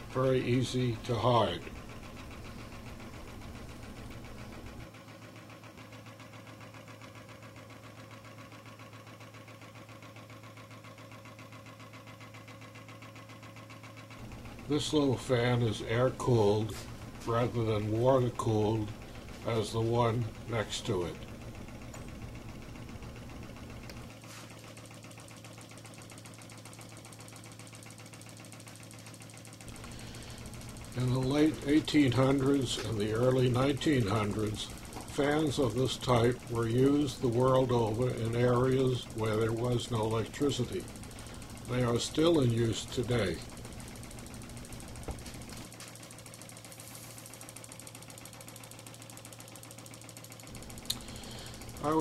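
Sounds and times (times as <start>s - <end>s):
small engines mechanical patter: 0.0s - 52.0s
low steady hum: 14.2s - 24.1s, 29.6s - 45.7s.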